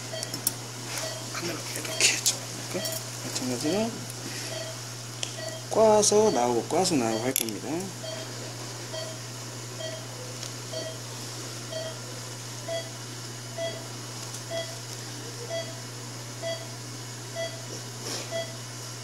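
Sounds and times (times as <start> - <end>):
low electrical hum: 0.0 - 19.0
patient monitor pulse beeps: 0.1 - 0.4, 1.0 - 1.3, 1.9 - 4.8, 5.4 - 7.4, 8.0 - 8.3, 8.9 - 9.2, 9.8 - 10.1, 10.7 - 11.0, 11.7 - 12.0, 12.7 - 12.9, 13.5 - 13.9, 14.5 - 14.8, 15.5 - 15.8, 16.4 - 16.7, 17.4 - 17.7, 18.3 - 18.6.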